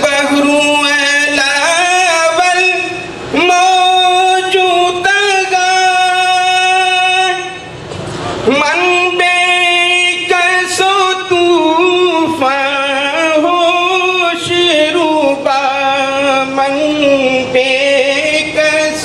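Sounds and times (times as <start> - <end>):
man singing unaccompanied: 0.0 - 7.7, 8.4 - 19.0.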